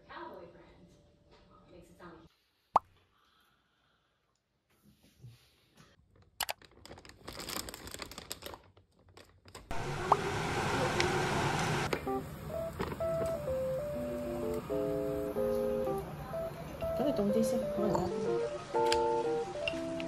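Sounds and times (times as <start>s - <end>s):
plastic sheeting crinkling: 6.0s - 9.7s
simple electronic tune: 11.9s - 20.0s.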